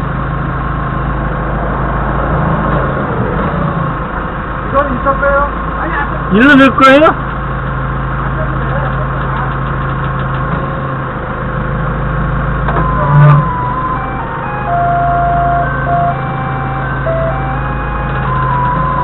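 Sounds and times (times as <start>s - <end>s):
forklift engine running: 0.0s - 19.0s
electronic beeping tune: 12.7s - 19.0s.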